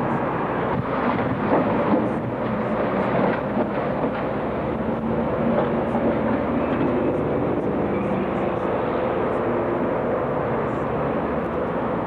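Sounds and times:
passing cars rumbling: 0.0s - 12.0s.

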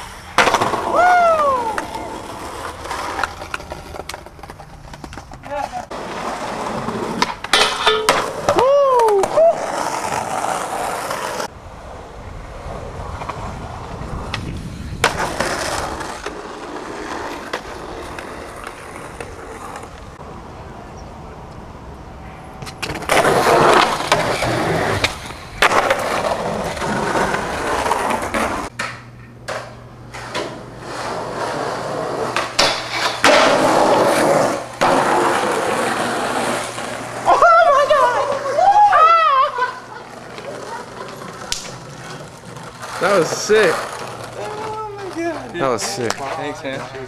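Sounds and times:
skateboard wheels rolling on concrete: 0.0s - 47.0s
skateboard clacks: 1.6s - 6.1s, 7.1s - 11.5s, 40.0s - 47.0s.

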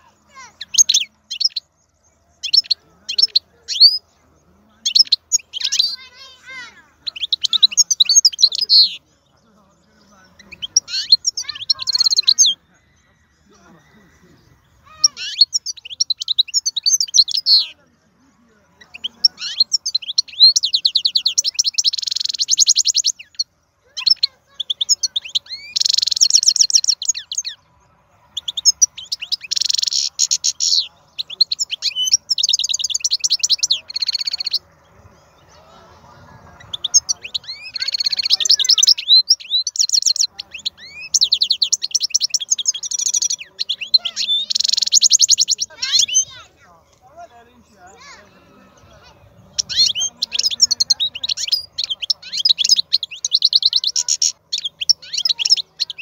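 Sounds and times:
goldfinch singing: 0.0s - 56.0s.

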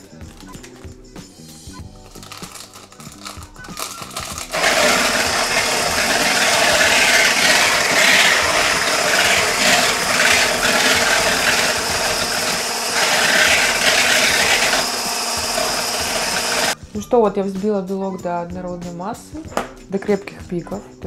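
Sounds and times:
electric blender whisking: 2.3s - 16.8s.

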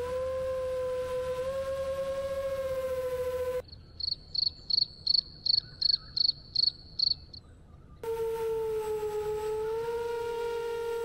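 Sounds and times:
insect chirping: 3.6s - 7.4s.

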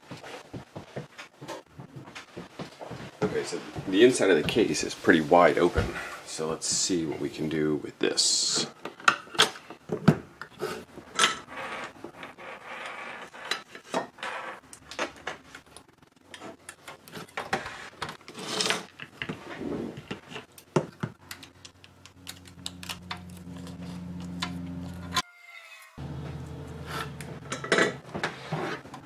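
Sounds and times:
low steady hum: 21.9s - 25.2s, 26.0s - 28.1s
scraping on workbench: 26.8s - 29.0s.

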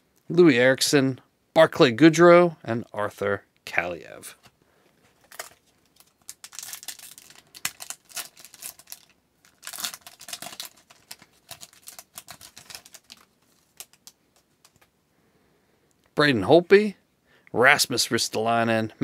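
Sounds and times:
plastic wrapper crinkling: 5.1s - 14.9s.

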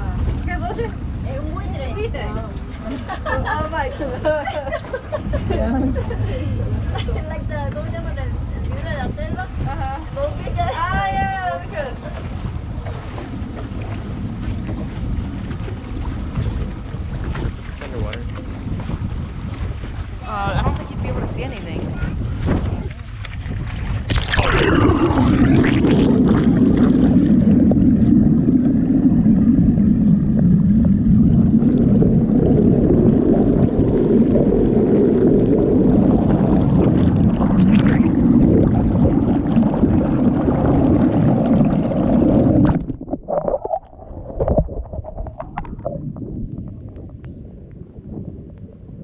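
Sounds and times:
underwater rush of water: 19.9s - 49.0s
water splashing: 22.4s - 48.8s.

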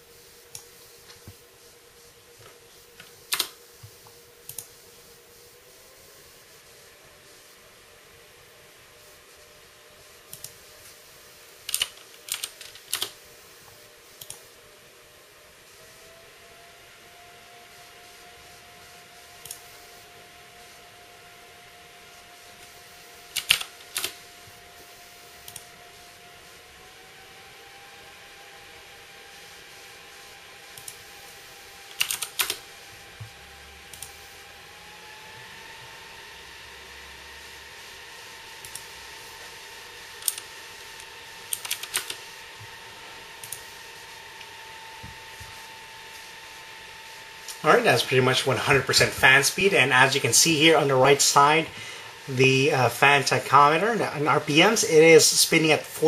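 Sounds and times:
computer fans whirring: 0.0s - 56.0s
sharp clicks: 3.3s - 3.6s, 23.3s - 24.2s, 40.2s - 42.2s
keyboard and mouse clicks: 11.7s - 13.2s, 23.3s - 24.2s, 41.5s - 42.2s.

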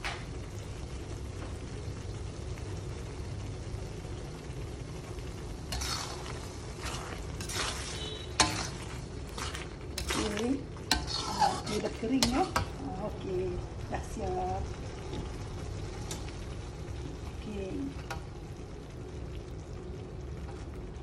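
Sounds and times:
sauce bubbling and sizzling: 0.0s - 21.0s
spatula scraping a wok: 5.7s - 12.8s.

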